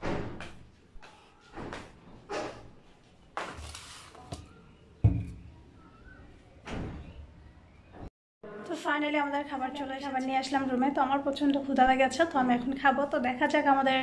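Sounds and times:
knocks of things being handled: 0:04.3 - 0:05.5.

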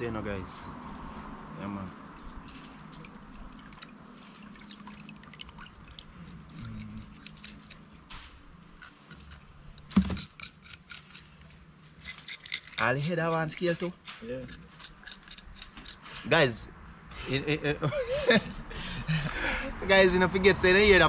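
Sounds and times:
knife scraping fish scales: 0:08.8 - 0:11.4, 0:12.0 - 0:13.8, 0:14.5 - 0:16.2.

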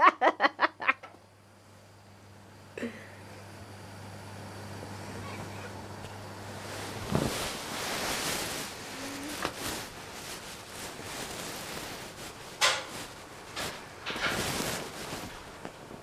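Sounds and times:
camera handling rustling on fabric: 0:06.7 - 0:12.3.

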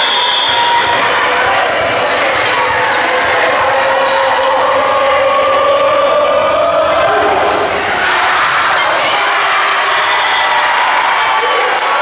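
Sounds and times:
volleyball play on hardwood court: 0:00.0 - 0:05.5
spectators talking and calling out: 0:00.0 - 0:12.0.

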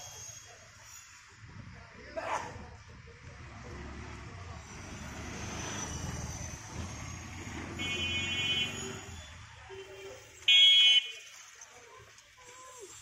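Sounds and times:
vehicle engine rumbling: 0:02.6 - 0:10.5
car horn honking: 0:07.6 - 0:09.1, 0:10.5 - 0:11.1.

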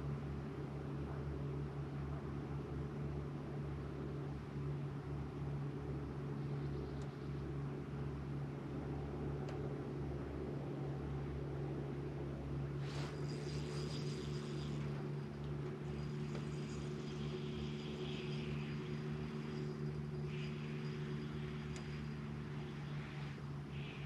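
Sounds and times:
electric trolling motor humming: 0:05.1 - 0:24.0.

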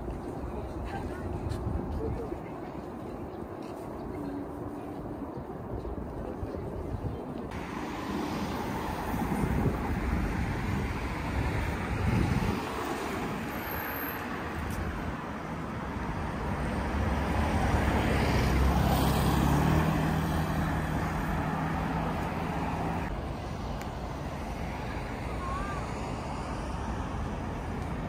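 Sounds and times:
cars driving past: 0:07.5 - 0:28.0.

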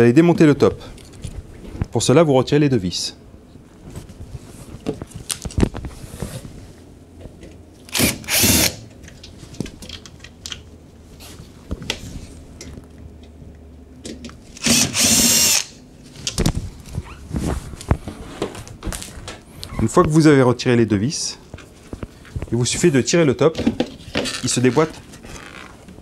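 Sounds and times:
cordless drill motor: 0:07.9 - 0:08.8, 0:14.6 - 0:15.7.

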